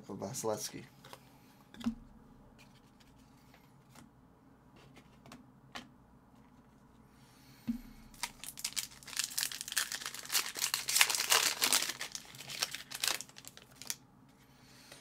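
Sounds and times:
foil wrapper crinkling and tearing: 0:08.1 - 0:14.0.

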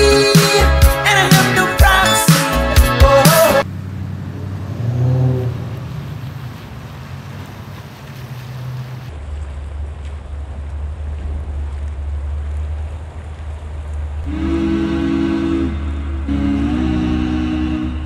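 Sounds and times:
car engine rumble: 0:03.1 - 0:18.0
car horn: 0:14.2 - 0:18.0.

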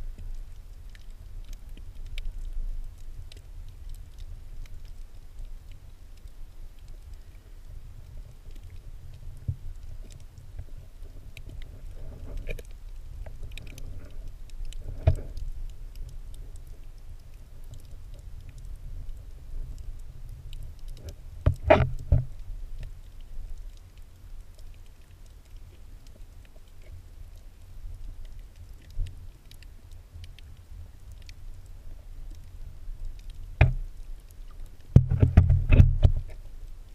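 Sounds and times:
faint clicks and crackles: 0:00.0 - 0:36.9
underwater rumble of moving water: 0:00.0 - 0:36.9
underwater knocks: 0:21.4 - 0:22.3, 0:33.6 - 0:33.9, 0:34.9 - 0:36.4.

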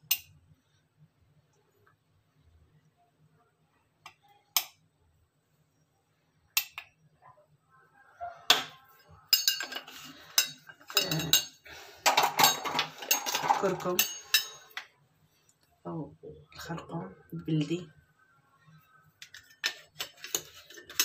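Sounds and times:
metal spoon clinking on pot: 0:09.3 - 0:14.9, 0:19.2 - 0:21.0.

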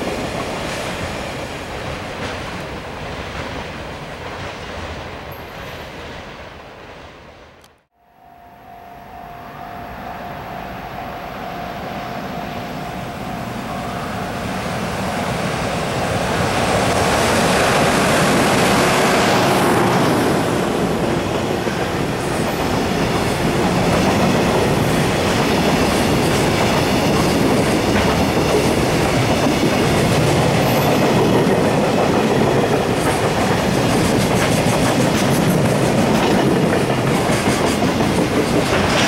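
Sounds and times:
freight train passing: 0:00.0 - 0:39.0
wheels clicking over rail joints: 0:14.5 - 0:39.0.

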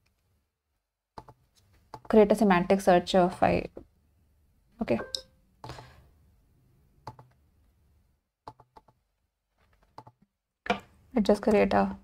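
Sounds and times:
computer mouse clicks: 0:01.2 - 0:02.1, 0:07.0 - 0:07.4, 0:08.5 - 0:09.0, 0:09.8 - 0:10.2.

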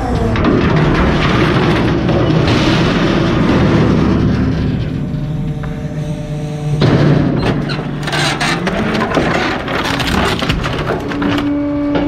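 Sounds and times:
trash crackling and splintering: 0:00.0 - 0:05.4, 0:06.8 - 0:11.7
truck engine hum: 0:03.0 - 0:12.0.

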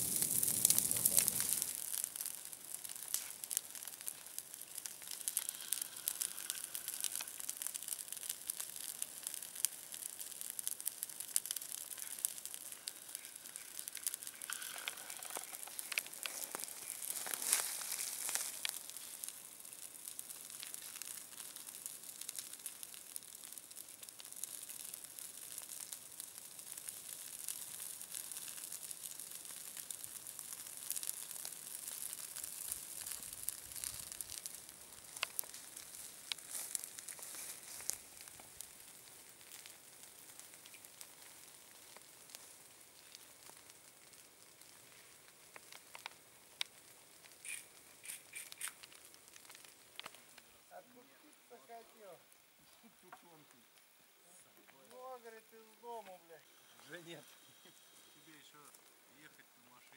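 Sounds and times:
fire crackling through dry grass: 0:00.0 - 0:59.9.

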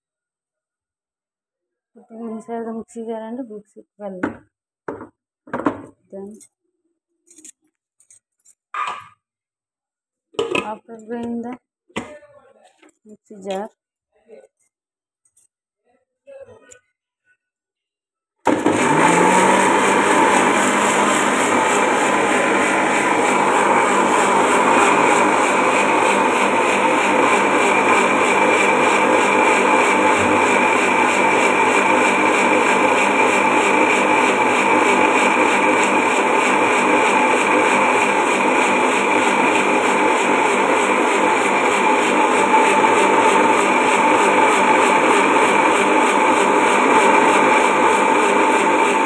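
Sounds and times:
mixer grinder motor running: 0:18.5 - 0:49.0.

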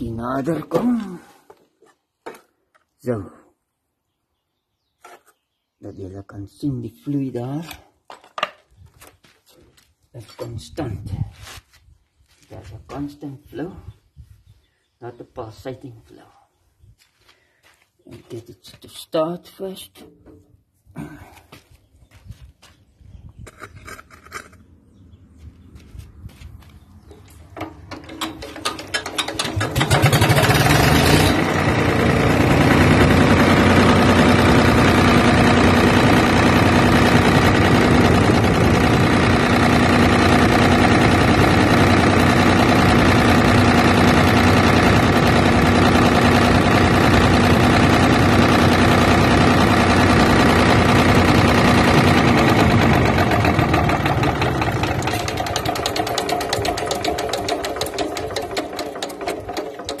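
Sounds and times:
diesel engine running: 0:27.3 - 1:00.0.

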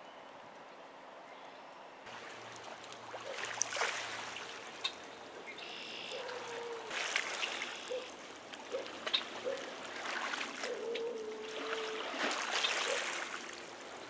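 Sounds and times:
water trickling and lapping: 0:02.0 - 0:14.0
small splashes: 0:02.1 - 0:05.1, 0:06.1 - 0:14.0.

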